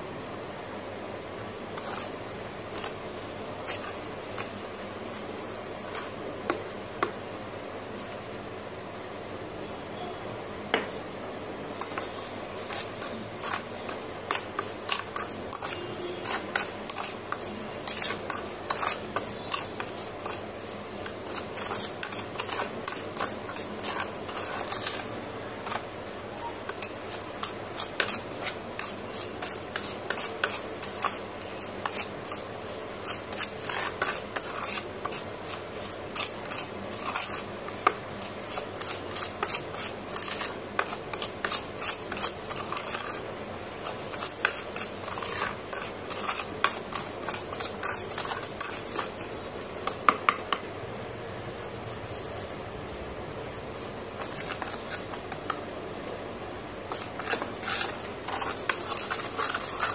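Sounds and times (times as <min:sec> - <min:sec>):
metal spoon scraping steel bowl: 0:01.8 - 0:05.2, 0:11.8 - 0:50.0, 0:54.1 - 0:55.5, 0:56.9 - 0:59.9.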